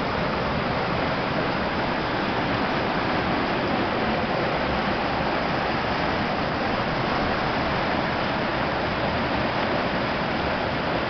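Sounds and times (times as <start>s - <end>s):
stream rapids roaring: 0.0s - 11.0s.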